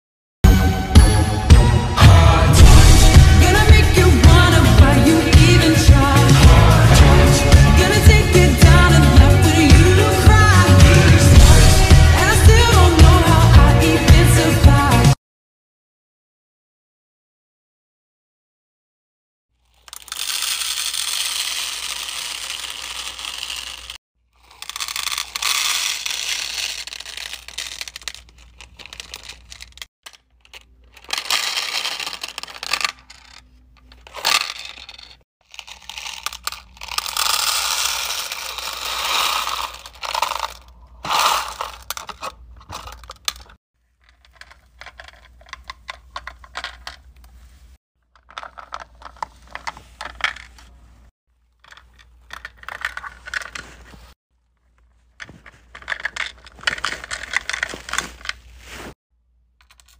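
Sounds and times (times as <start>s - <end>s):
beads rattling in plastic box: 19.6s - 47.2s, 48.1s - 50.7s, 51.5s - 54.2s, 55.2s - 58.9s.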